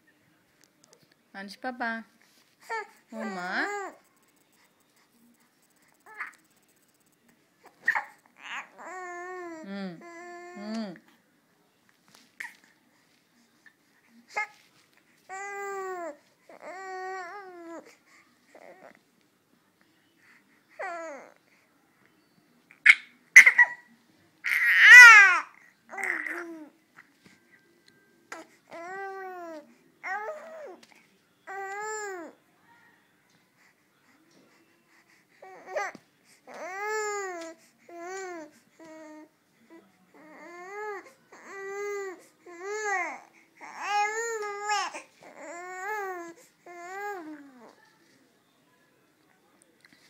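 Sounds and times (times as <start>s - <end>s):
baby squeaking: 7.8s - 8.7s
baby whiny crying: 7.8s - 10.7s, 15.3s - 17.9s, 20.8s - 21.4s, 24.4s - 26.7s, 28.3s - 30.8s, 35.4s - 39.3s, 40.2s - 47.7s.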